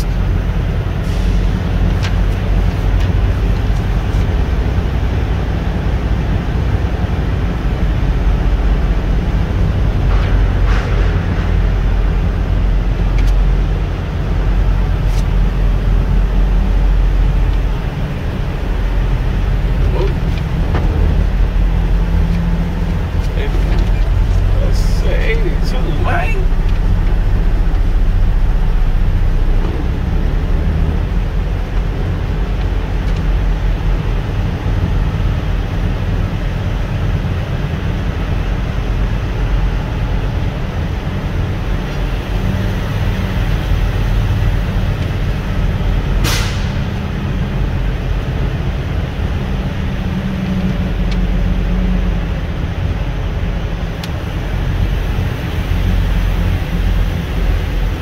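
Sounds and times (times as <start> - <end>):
engine and road rumble: 0.0 - 58.0.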